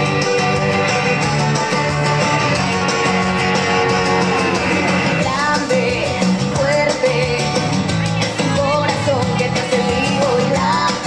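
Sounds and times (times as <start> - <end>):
dance music with guitar and beat: 0.0 - 11.0
person singing: 3.9 - 11.0.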